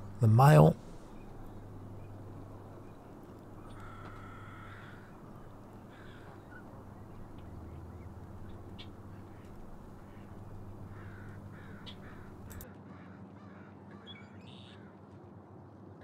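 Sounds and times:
steady low hum: 0.0 - 12.6
crow cawing: 1.0 - 14.0.

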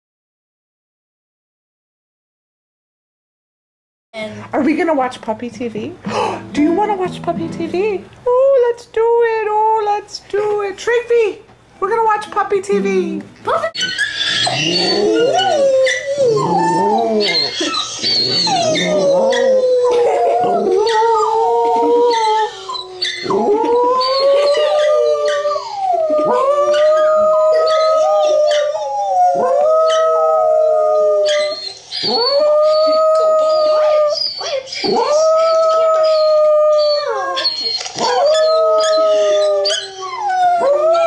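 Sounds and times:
dog howling: 13.8 - 41.0.

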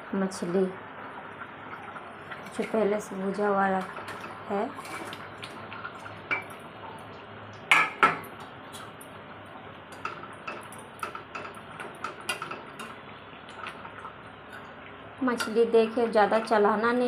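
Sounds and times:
steel bowl clanking on pan: 7.7 - 8.3, 9.9 - 13.0, 15.3 - 15.7.

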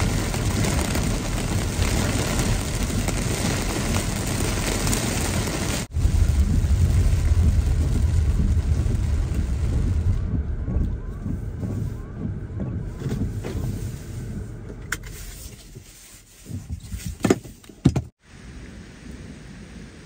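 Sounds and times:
heavy rain on car roof: 0.0 - 14.6
wind and moving car rumble: 0.0 - 20.0.

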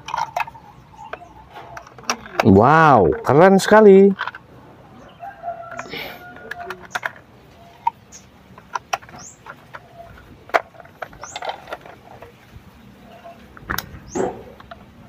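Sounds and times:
plastic toy parts clicking: 0.0 - 4.4, 5.7 - 12.4.

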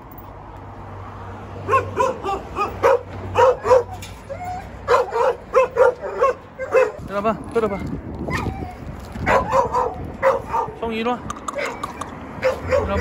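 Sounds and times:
dog barking high-pitched: 1.6 - 7.0, 9.2 - 10.8, 11.6 - 13.0.

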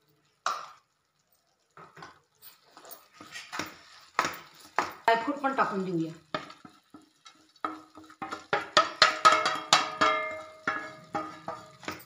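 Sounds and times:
steel bowl tapping on pan rim: 6.3 - 12.0.

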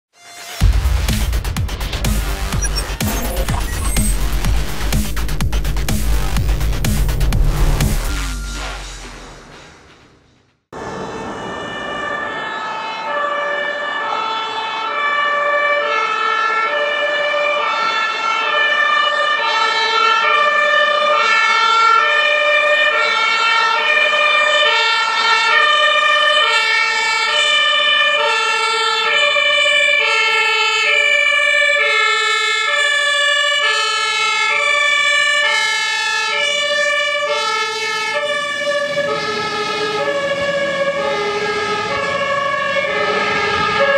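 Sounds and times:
two-tone fire truck horn: 11.2 - 43.9.

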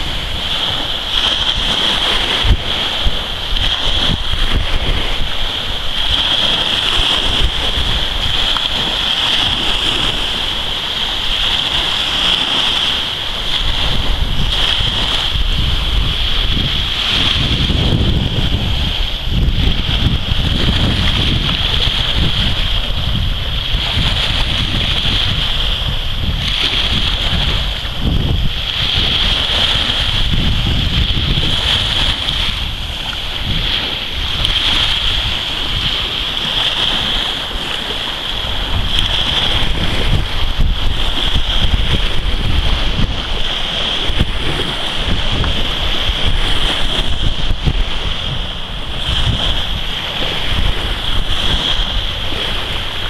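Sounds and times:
small waves breaking on shore: 0.0 - 53.0
wind buffeting microphone: 0.0 - 53.0.

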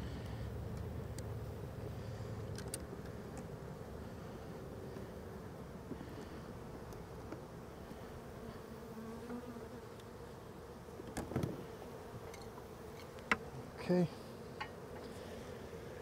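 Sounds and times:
bees buzzing: 0.0 - 16.0.

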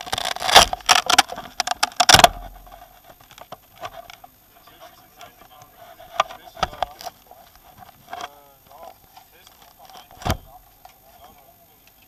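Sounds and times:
camera handling rustling and clattering: 5.2 - 11.3.

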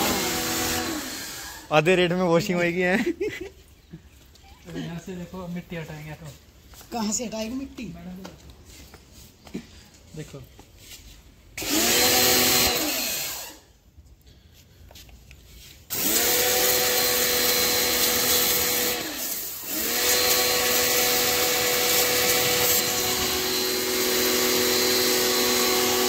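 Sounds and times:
pressure washer motor and pump: 0.0 - 1.8, 11.6 - 13.7, 15.6 - 26.0
water spray hissing: 15.6 - 26.0.

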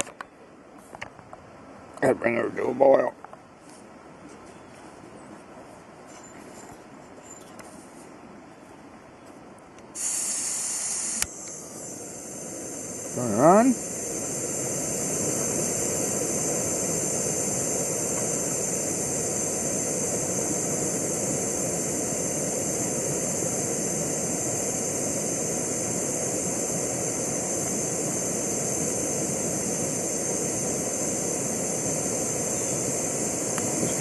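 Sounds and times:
gas stove burner hissing: 9.9 - 34.0.

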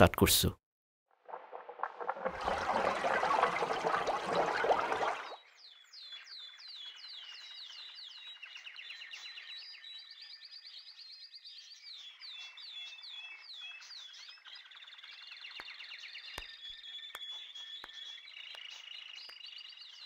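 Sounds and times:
birds chirping and calling: 5.7 - 20.0.

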